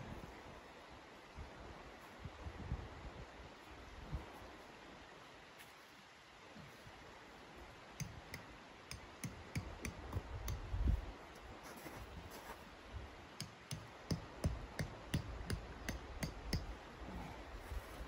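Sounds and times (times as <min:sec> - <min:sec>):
tent peg tapped in snow: 0:08.0 - 0:11.0, 0:13.4 - 0:16.8.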